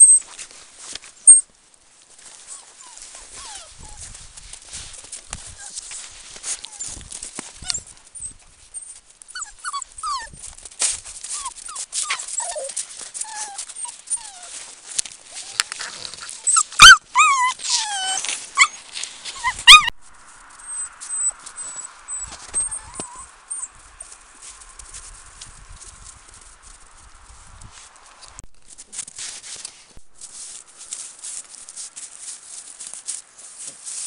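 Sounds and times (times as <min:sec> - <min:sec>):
puppies whimpering and yipping: 0:00.0 - 0:00.2, 0:02.4 - 0:04.1, 0:05.4 - 0:10.5, 0:11.2 - 0:14.6, 0:15.3 - 0:24.8.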